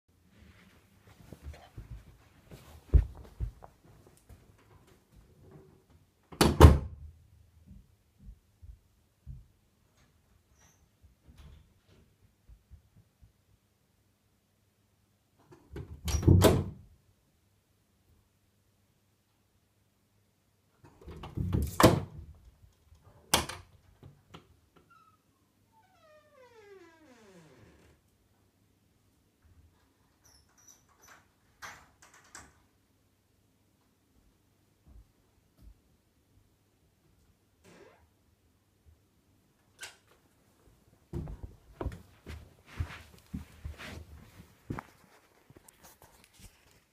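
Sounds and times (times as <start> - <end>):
soft footsteps: 0.3 - 4.6, 40.6 - 46.9.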